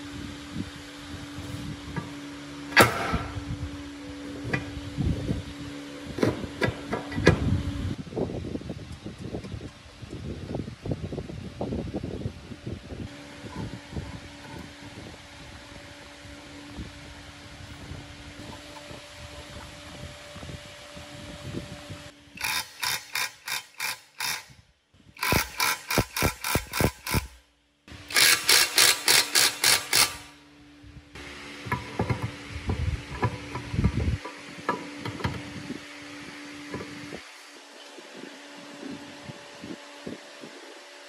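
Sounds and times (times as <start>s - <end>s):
impact wrench rattling: 22.4s - 24.5s, 25.2s - 27.4s, 28.0s - 30.3s.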